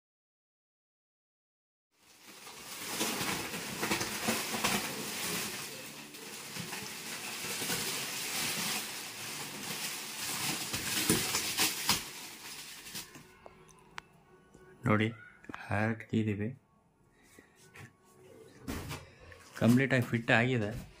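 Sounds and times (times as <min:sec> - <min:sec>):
plastic wrapping crinkling: 0:02.0 - 0:14.0.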